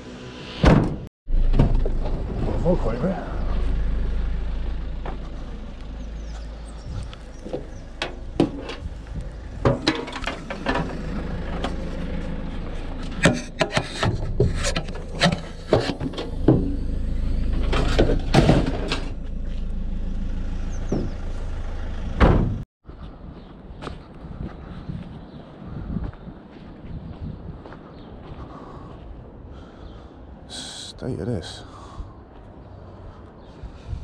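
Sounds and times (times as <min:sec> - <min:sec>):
van engine idling: 0:01.3 - 0:22.6
scrap metal knocks and clatters: 0:07.4 - 0:08.9, 0:09.5 - 0:16.8
heavy thump: 0:22.2 - 0:22.6.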